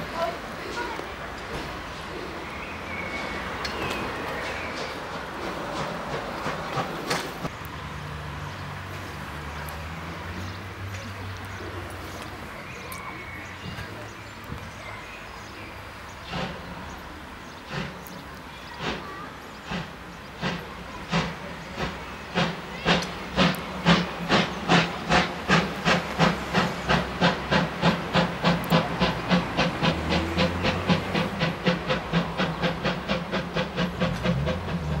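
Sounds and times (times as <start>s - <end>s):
steam hissing: 16.0s - 35.0s
steam locomotive exhaust chuffs: 16.2s - 35.0s.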